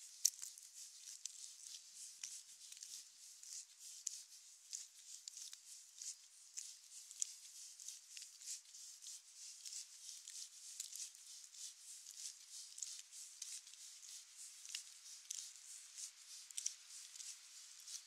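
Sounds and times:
light rain pattering and dripping: 0.1 - 18.0.

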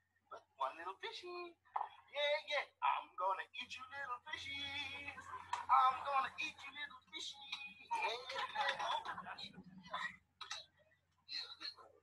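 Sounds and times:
man singing: 3.9 - 5.3.

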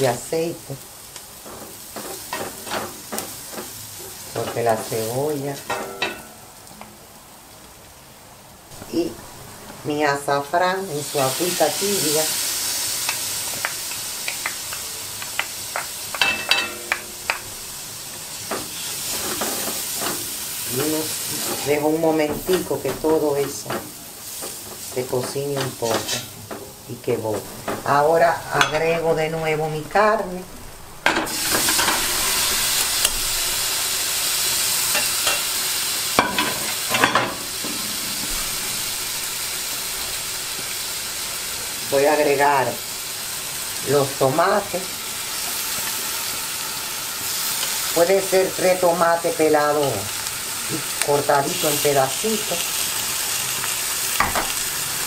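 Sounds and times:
food sizzling in oil: 0.0 - 55.0
plate and fork clinking: 16.2 - 17.4.

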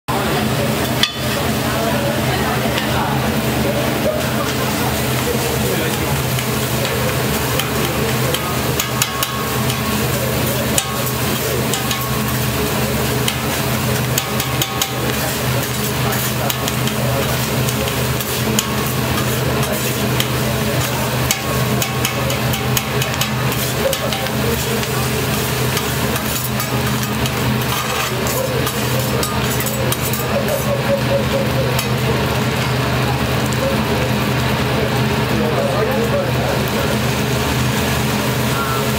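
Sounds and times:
sizzle of frying: 0.1 - 38.9
metal spatulas scraping on griddle: 4.2 - 32.0.

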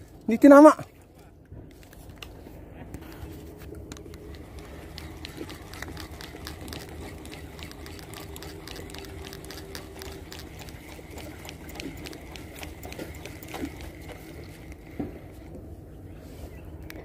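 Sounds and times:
low steady rumble: 0.0 - 17.0
fishing reel clicking: 3.9 - 15.4.

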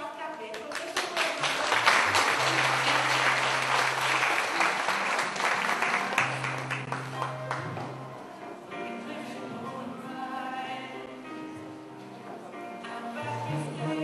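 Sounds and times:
audience applauding: 0.6 - 7.8
music playing: 1.4 - 14.0.

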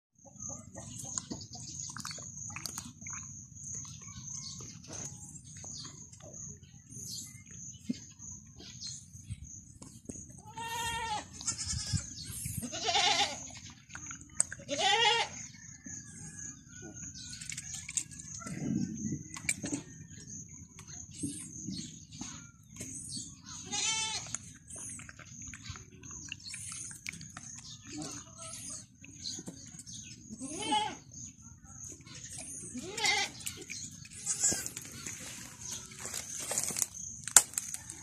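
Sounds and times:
goat kid bleating: 10.4 - 13.6, 14.6 - 15.4, 23.5 - 24.3, 30.3 - 31.1, 32.7 - 34.8.

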